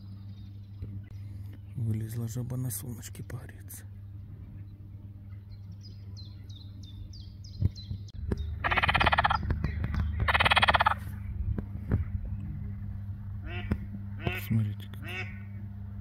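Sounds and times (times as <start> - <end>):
bird chirping: 0.0 - 11.2
frog croaking: 8.6 - 9.5, 10.1 - 11.1.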